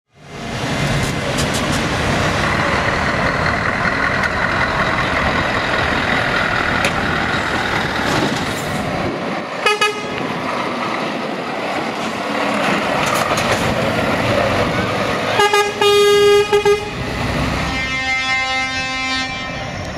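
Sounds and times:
truck diesel engines: 0:00.1 - 0:19.9
truck horn toots: 0:09.6 - 0:10.2, 0:15.3 - 0:19.9.

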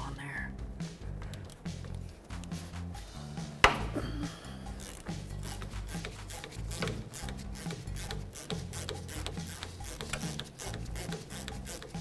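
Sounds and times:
ratchet wrench clicking: 0:04.8 - 0:12.0.

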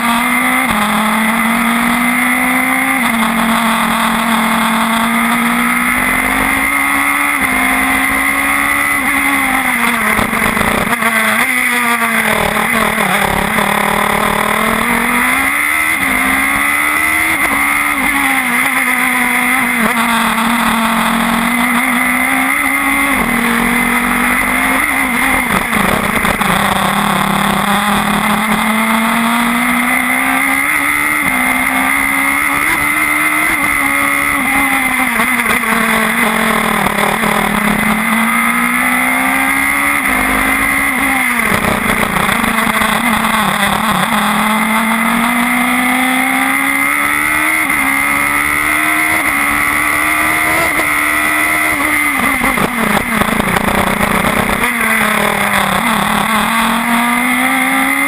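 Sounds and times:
race car engine revving through gears: 0:00.0 - 0:58.0.

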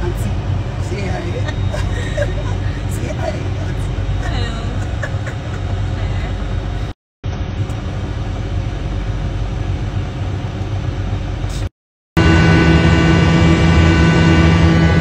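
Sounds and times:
jet cabin rumble with hiss: 0:00.0 - 0:11.7.

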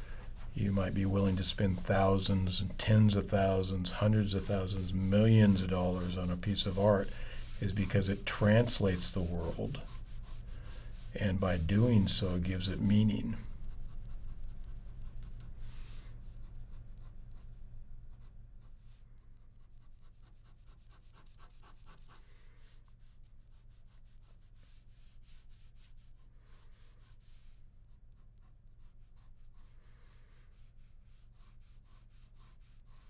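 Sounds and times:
low steady hum: 0:00.0 - 0:19.7
pen scratching on paper: 0:00.1 - 0:17.5, 0:18.1 - 0:33.0.

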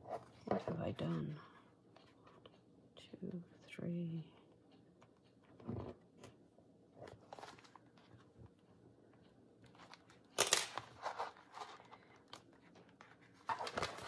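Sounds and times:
paper and card rustling: 0:07.0 - 0:08.3, 0:09.7 - 0:14.0.

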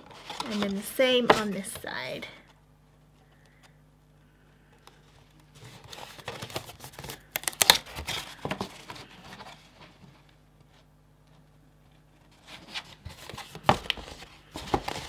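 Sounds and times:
paper rustling: 0:00.0 - 0:01.9, 0:04.9 - 0:15.0.

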